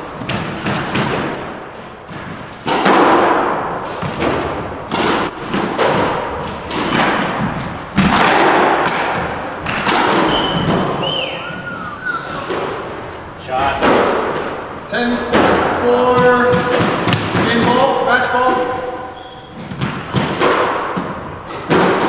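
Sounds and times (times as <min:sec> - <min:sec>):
squash ball hitting racquets and walls: 0:00.0 - 0:22.0
sneaker squeaks on wooden floor: 0:01.1 - 0:02.1, 0:05.2 - 0:06.0, 0:07.4 - 0:09.5, 0:10.1 - 0:13.0, 0:16.2 - 0:17.7, 0:18.8 - 0:20.1.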